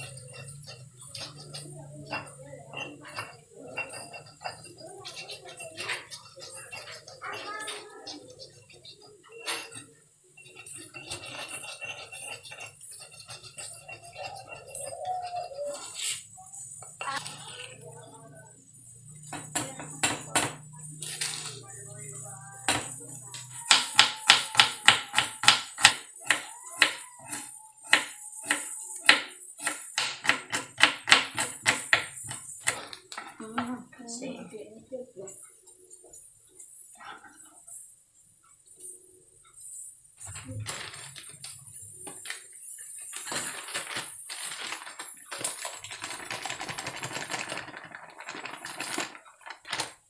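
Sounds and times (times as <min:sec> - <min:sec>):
pestle scraping in stone mortar: 0:00.0 - 0:17.9, 0:22.6 - 0:33.8.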